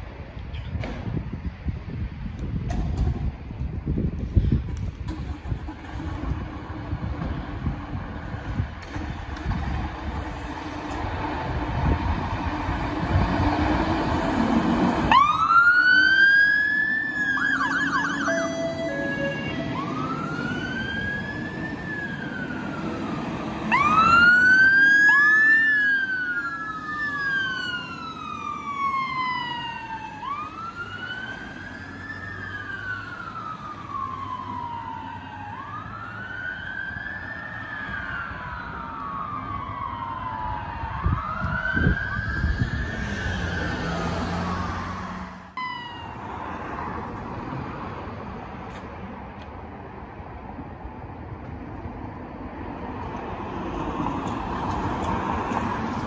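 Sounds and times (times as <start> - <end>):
steady vehicle noise: 0.0 - 56.0
fire engine sirens wailing: 5.1 - 47.2.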